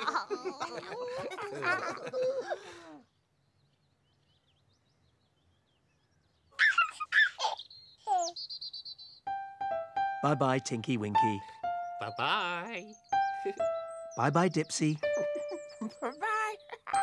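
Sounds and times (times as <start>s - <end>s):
baby giggling: 0.0s - 2.8s, 6.6s - 8.4s, 15.2s - 17.0s
high-pitched character voices chattering: 15.1s - 17.0s.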